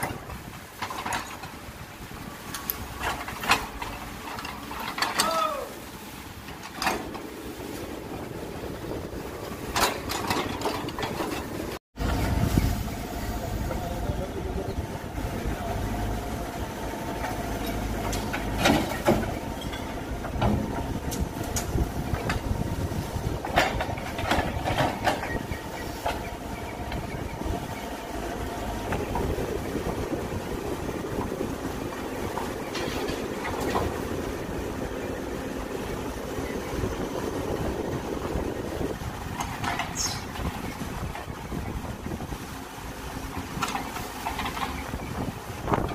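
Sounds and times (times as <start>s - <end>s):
diesel engine running under load: 6.0s - 45.9s
bucket clanking on debris: 17.7s - 20.8s.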